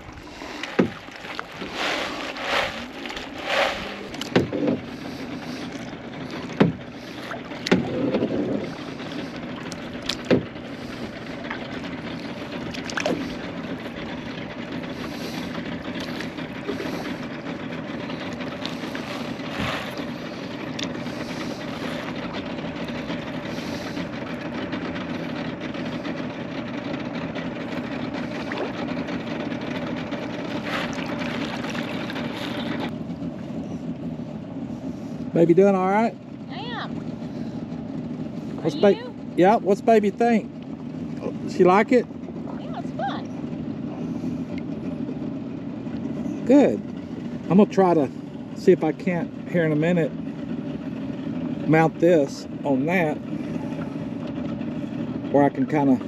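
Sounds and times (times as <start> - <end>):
paddle sweeping through water: 0.0 - 35.4
steady low drone: 0.0 - 56.0
water washing along hull: 0.0 - 56.0.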